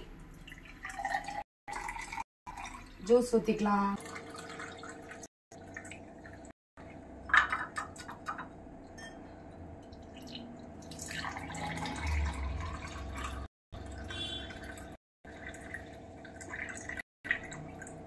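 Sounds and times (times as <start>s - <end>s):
liquid trickling into a glass: 0.3s - 3.1s, 4.0s - 6.5s, 9.0s - 18.0s.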